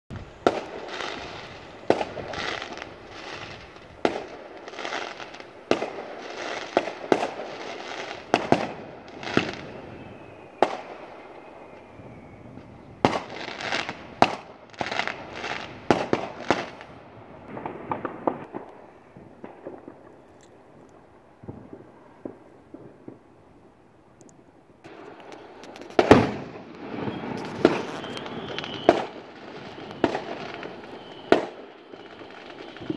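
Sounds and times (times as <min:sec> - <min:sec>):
fireworks bangs: 0:00.1 - 0:24.0, 0:24.8 - 0:32.9
fireworks crackling: 0:00.1 - 0:32.9.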